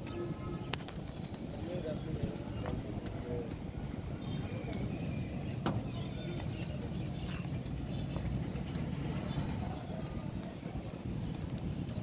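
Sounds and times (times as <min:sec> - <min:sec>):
steady low rumble: 0:02.4 - 0:12.0.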